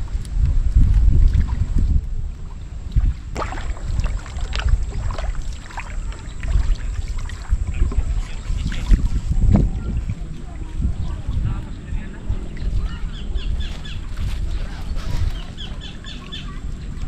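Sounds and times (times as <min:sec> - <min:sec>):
water splashing from paddle: 0:00.0 - 0:17.0
wind on microphone: 0:00.0 - 0:17.0.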